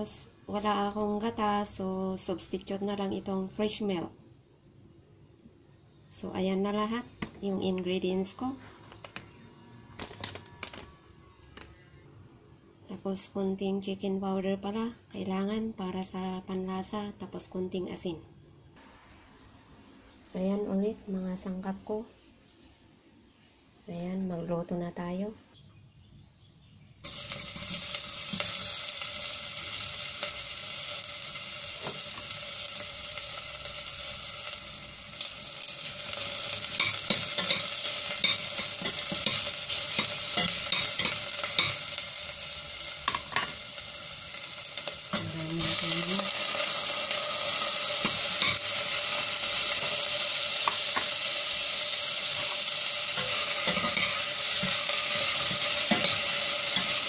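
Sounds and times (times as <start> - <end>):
onion sizzling in saucepan: 0.0 - 4.1, 27.0 - 57.0.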